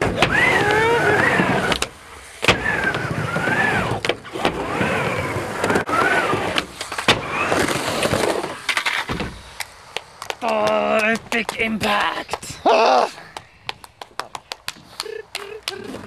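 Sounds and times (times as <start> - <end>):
skateboard wheels rolling: 0.0 - 12.6
skateboard trucks grinding: 0.0 - 13.8
skateboard clacking on ramp: 9.9 - 12.5.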